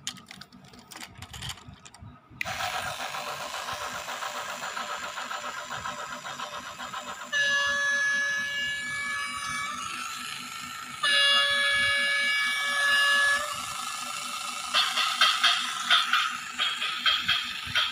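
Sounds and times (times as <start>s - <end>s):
toy diesel engine chugging: 0.0s - 17.9s
toy train horn blasts: 7.2s - 10.2s, 11.0s - 14.2s.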